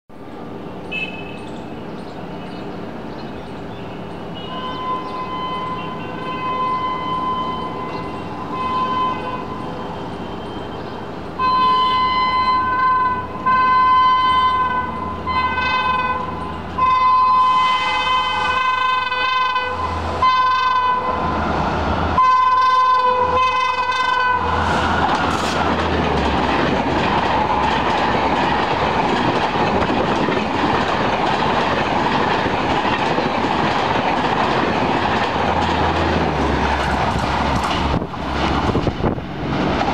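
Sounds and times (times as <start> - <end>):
train rushing past: 3.8 - 39.9
train horn blasts: 4.4 - 9.8, 11.4 - 21.3, 22.2 - 24.9.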